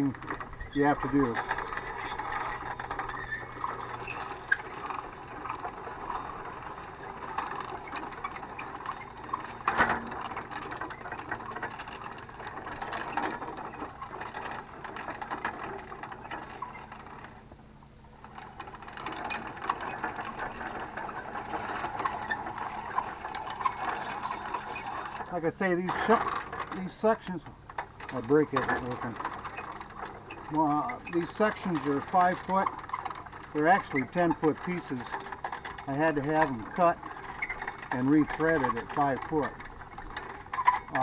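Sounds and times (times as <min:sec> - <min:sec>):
winch ratchet rattling and clicking: 0:00.0 - 0:41.0.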